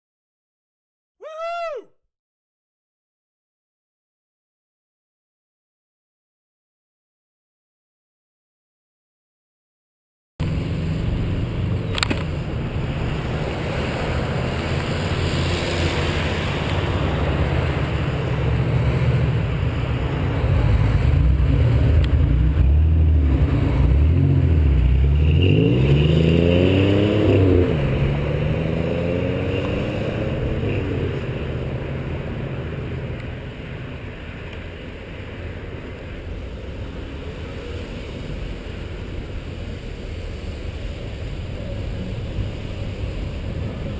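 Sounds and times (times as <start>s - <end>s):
car engine revving: 10.4s - 33.0s
road traffic rumble: 10.4s - 43.9s.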